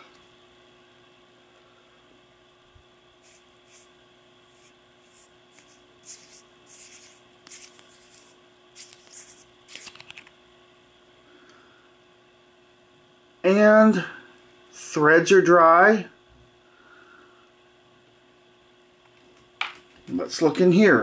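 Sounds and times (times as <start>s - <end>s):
flashlight threads scraping: 3.2s - 3.9s, 4.5s - 10.3s.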